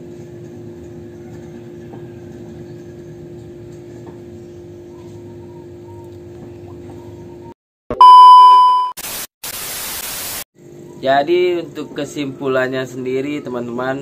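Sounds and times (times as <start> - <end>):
steady background hum: 0.7 - 7.5.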